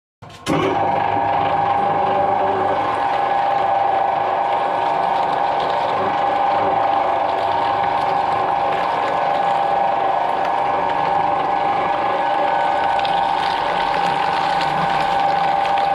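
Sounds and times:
shredder machine whining: 0:00.4 - 0:15.9.

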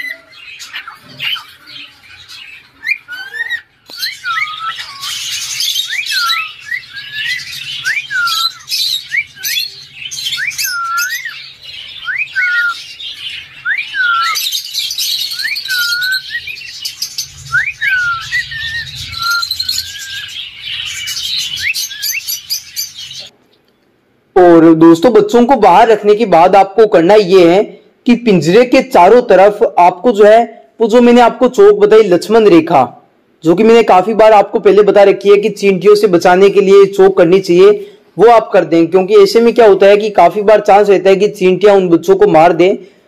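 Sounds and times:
birds squawking and chattering: 0:00.0 - 0:23.8
cockatiel whistled call: 0:02.8 - 0:11.4, 0:12.0 - 0:12.9, 0:13.6 - 0:23.3.

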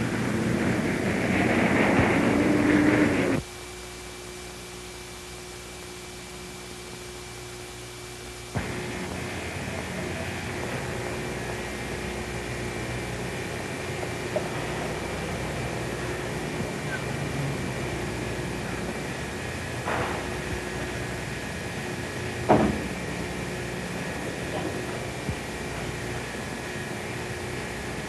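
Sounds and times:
loud rushing noise: 0:00.0 - 0:03.4
old film soundtrack hiss and hum: 0:00.0 - 0:28.0.

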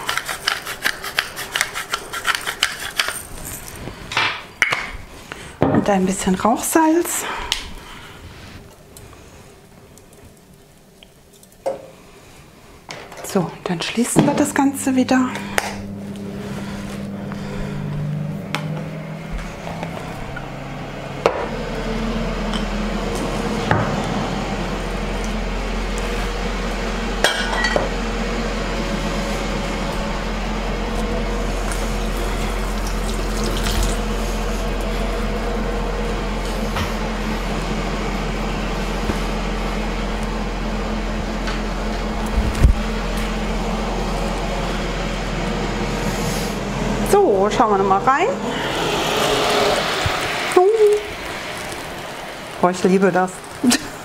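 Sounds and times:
fan whirring: 0:00.0 - 0:54.0.

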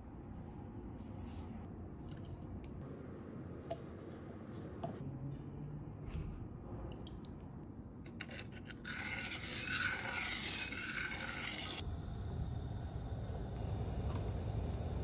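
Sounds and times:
low steady hum: 0:11.8 - 0:15.0.

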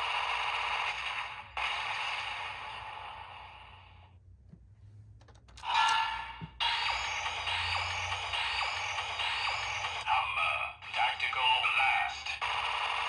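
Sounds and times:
electronic toy gun blast effect: 0:00.0 - 0:03.8, 0:06.6 - 0:10.2, 0:10.9 - 0:13.0.

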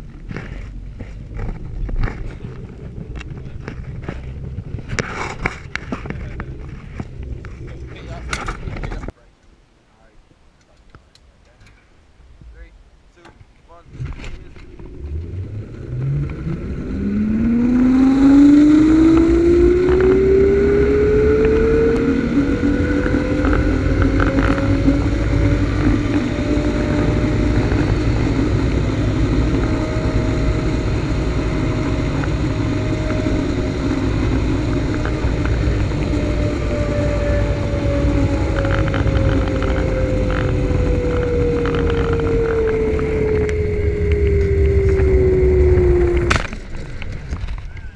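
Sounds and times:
wind rushing over microphone: 0:00.0 - 0:09.2, 0:12.2 - 0:47.9
zipline pulleys whining on cable: 0:14.8 - 0:47.7.

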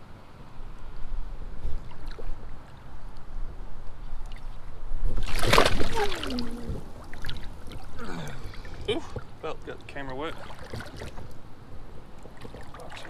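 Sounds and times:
creek water splashing: 0:05.1 - 0:13.0
person exclaiming: 0:05.9 - 0:06.8.

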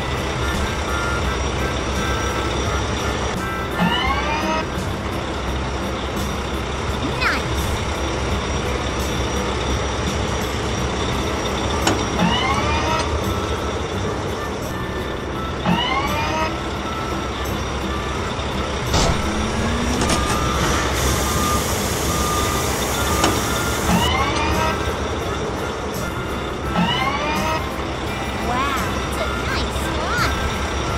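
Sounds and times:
engine running: 0:00.0 - 0:30.9
rising whine: 0:07.6 - 0:30.9
reversing beeps: 0:14.9 - 0:27.6.

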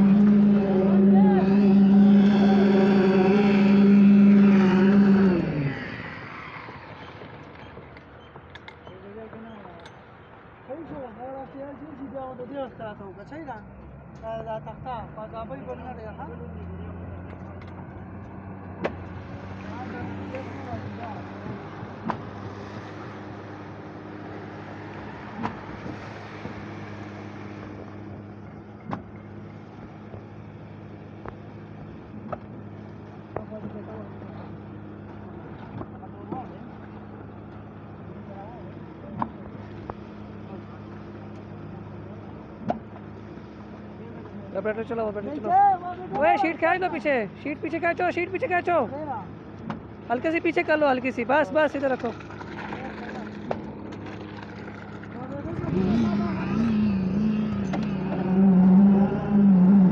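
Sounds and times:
machine motor humming: 0:00.0 - 0:05.7
diesel engine humming: 0:00.0 - 0:59.9.

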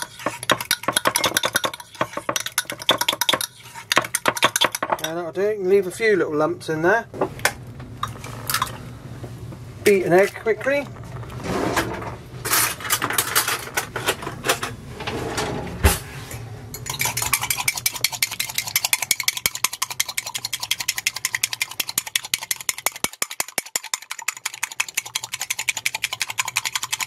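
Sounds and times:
fork beating egg in mug: 0:00.0 - 0:05.2, 0:16.8 - 0:27.0.

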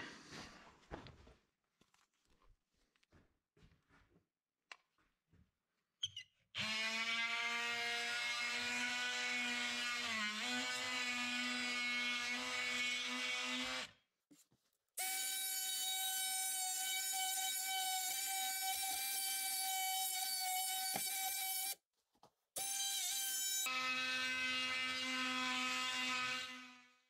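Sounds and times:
oscillating multi-tool buzzing: 0:15.0 - 0:21.8, 0:22.6 - 0:27.0.

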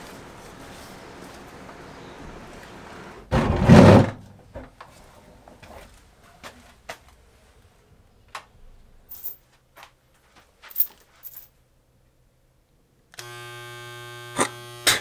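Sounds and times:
electric hair clippers buzzing: 0:13.2 - 0:15.0.

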